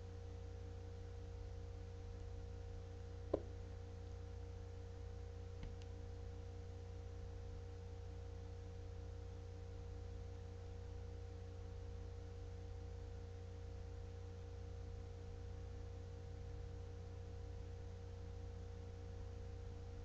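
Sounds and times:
faint constant tones: 0.0 - 20.0
low electrical hum: 0.0 - 20.0
small click: 5.6 - 6.0.

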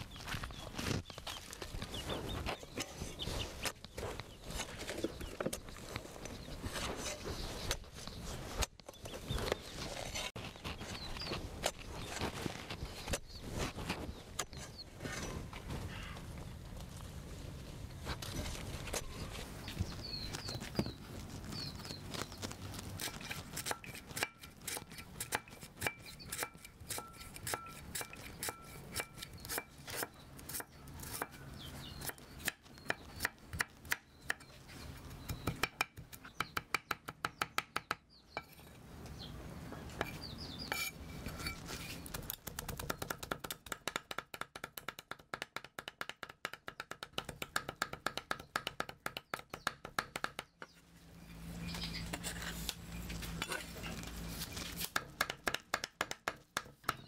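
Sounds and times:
birds chirping: 0.0 - 16.7, 17.7 - 24.1, 25.5 - 43.3, 49.2 - 54.3
cleaver chopping on wooden block: 42.5 - 50.7, 54.8 - 57.0.

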